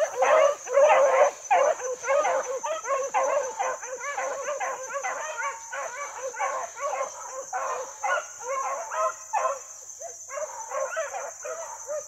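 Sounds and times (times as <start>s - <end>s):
hounds baying: 0.0s - 12.0s.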